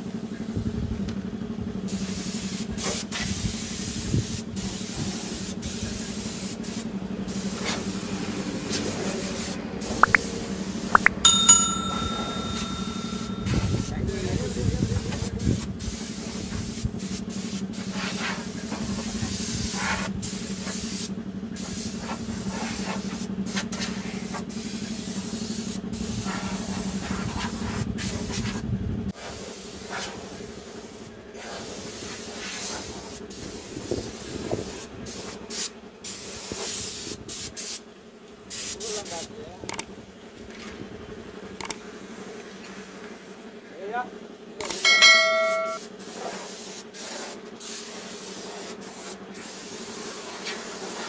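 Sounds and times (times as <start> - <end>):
spray gun hissing: 2.0 - 8.0, 46.5 - 51.0.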